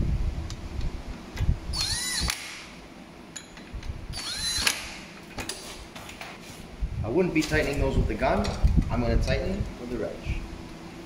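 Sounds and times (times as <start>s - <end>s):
impact gun whining: 1.7s - 2.8s, 4.1s - 5.2s.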